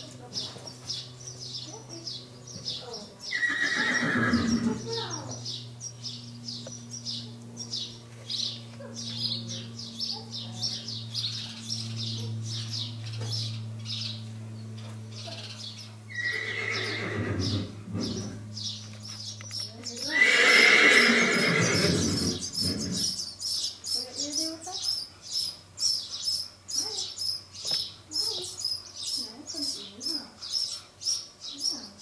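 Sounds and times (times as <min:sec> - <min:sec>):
birds chirping: 0:00.0 - 0:32.0
steady low hum: 0:00.0 - 0:32.0
horse whinny: 0:03.3 - 0:04.8, 0:16.1 - 0:18.4, 0:20.1 - 0:23.2.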